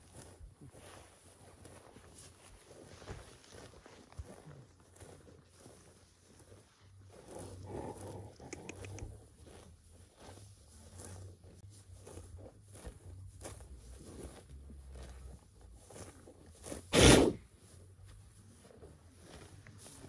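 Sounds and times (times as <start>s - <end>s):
rhinoceros tearing grass: 0.0s - 20.0s
rhinoceros blast of breath: 16.9s - 17.4s.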